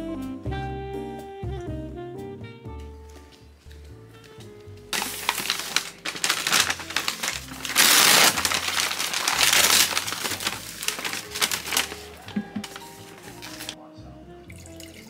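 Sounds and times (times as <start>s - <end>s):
soft background music: 0.0s - 15.0s
crinkling and rustling: 3.1s - 13.8s.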